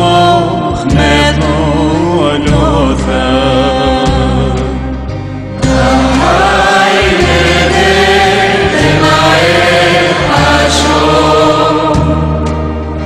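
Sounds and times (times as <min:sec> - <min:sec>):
voices singing a slow hymn: 0:05.6 - 0:13.0.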